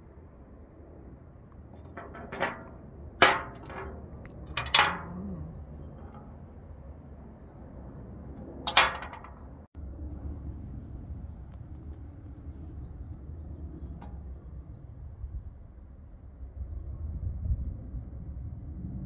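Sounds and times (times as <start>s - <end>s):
glass and metal clinks: 2.0s - 6.2s.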